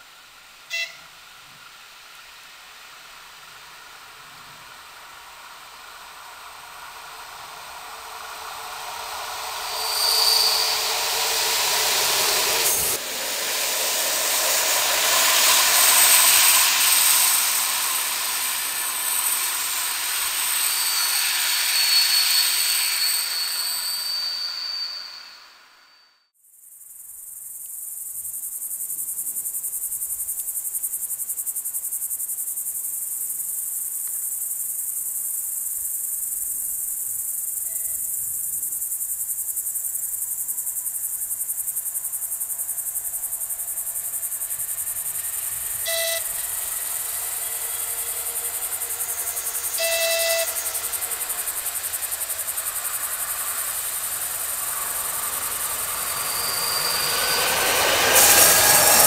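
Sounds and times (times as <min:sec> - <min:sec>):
train rumble: 0:00.0 - 0:26.0, 0:29.0 - 0:59.0
train horn blasts: 0:00.7 - 0:01.2, 0:45.6 - 0:51.5
crickets chirring: 0:02.0 - 0:59.0.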